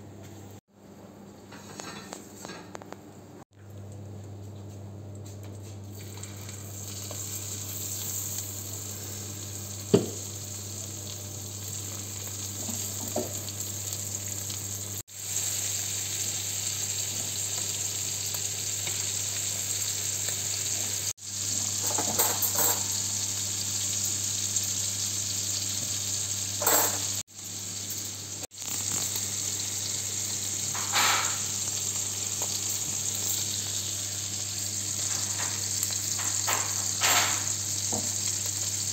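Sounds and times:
meat sizzling in butter: 0:06.0 - 0:38.9
tongs and spoon clinking on pan: 0:21.8 - 0:23.0, 0:26.6 - 0:27.1.

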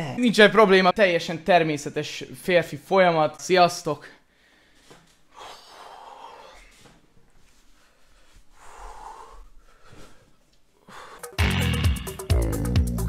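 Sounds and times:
loud music with heavy bass beat: 0:11.2 - 0:13.0.

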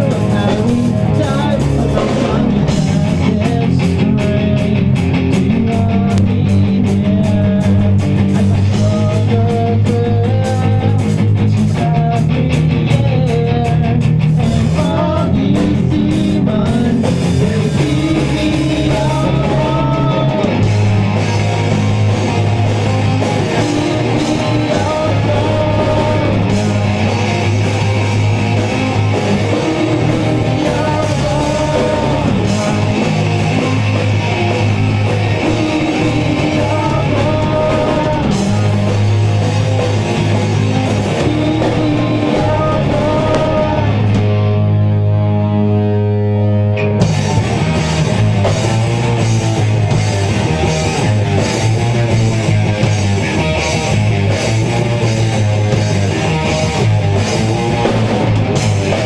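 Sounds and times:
person singing lead vocals: 0:00.0 - 0:21.8, 0:22.9 - 0:44.7
drum kit fast beat: 0:00.0 - 0:44.6, 0:47.0 - 0:59.0
electric bass: 0:00.0 - 0:59.0
electric guitars: 0:00.0 - 0:59.0.

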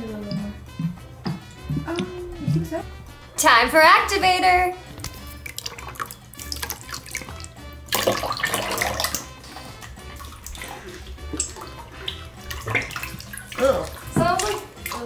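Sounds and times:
background music: 0:00.0 - 0:15.0
liquid trickling into plastic bowls: 0:05.0 - 0:15.0.

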